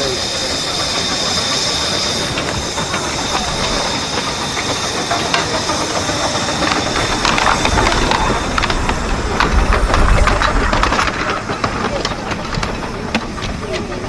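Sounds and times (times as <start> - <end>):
steam locomotive hissing and chuffing: 0.0 - 14.0
wheels clicking on rail: 0.0 - 14.0
low rumble: 6.8 - 13.6.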